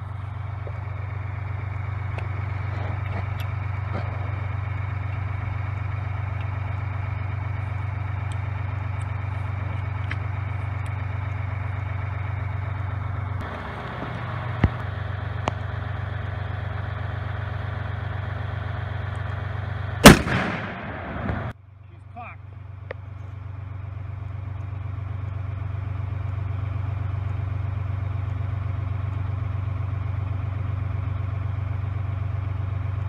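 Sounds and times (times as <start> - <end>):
low mechanical hum: 0.0 - 33.0
loud rifle shot with echo: 20.0 - 21.5.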